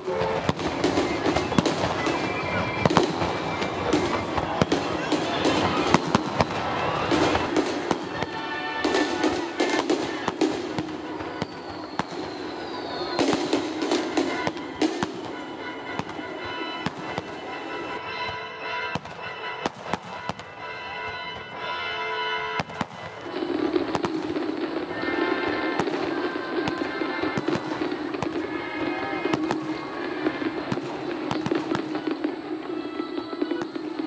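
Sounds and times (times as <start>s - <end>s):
fireworks bangs and crackles: 0.0s - 34.0s
music playing: 23.2s - 34.0s.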